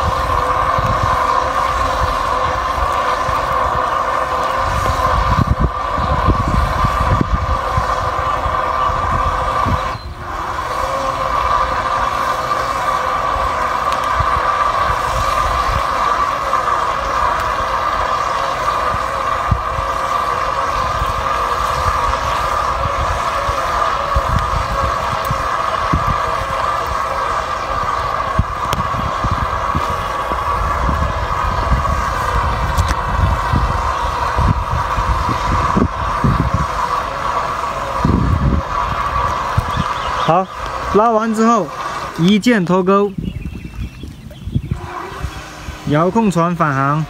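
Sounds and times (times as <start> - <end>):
boat motor whine: 0.0 - 47.0
wind buffeting microphone: 0.0 - 47.0.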